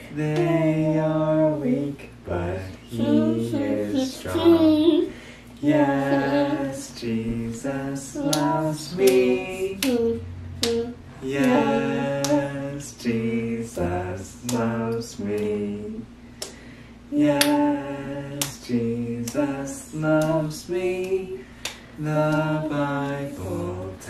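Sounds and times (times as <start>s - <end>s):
woman singing held notes: 2.8s - 5.1s.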